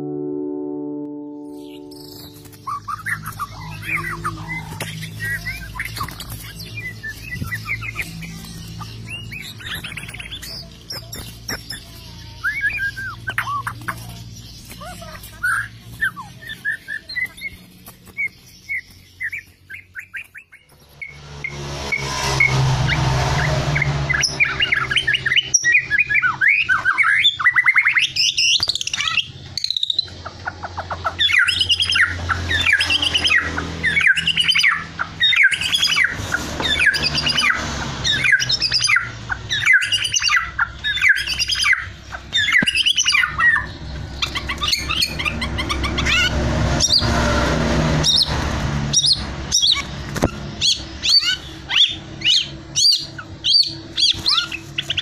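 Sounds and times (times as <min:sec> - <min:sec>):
songbird singing varied phrases: 0:01.1 - 0:17.7.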